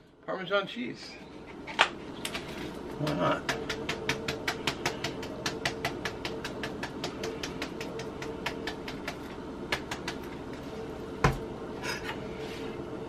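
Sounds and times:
faint steady hum: 0.0s - 13.0s
shaker can shaking: 2.3s - 10.6s.

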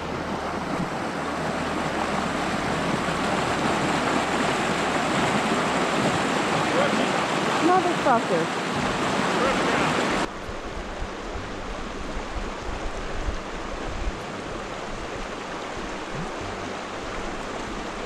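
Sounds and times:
creek running over rocks: 0.0s - 18.0s.

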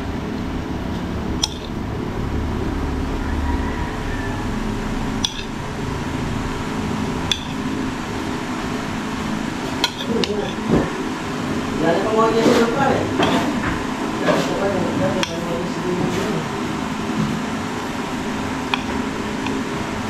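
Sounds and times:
background hum: 0.0s - 20.0s
metal spoon clinking on plates: 1.4s - 1.7s, 5.2s - 5.5s, 7.3s - 7.6s, 9.7s - 10.6s, 13.2s - 13.5s, 15.2s - 15.5s.

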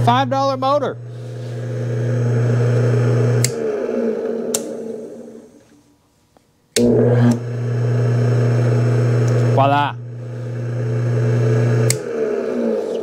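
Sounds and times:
electric motor humming: 0.0s - 5.6s, 6.8s - 13.0s
motor whirring down: 1.0s - 5.6s, 6.8s - 13.0s
power switch click: 3.4s - 3.6s, 11.8s - 12.1s.

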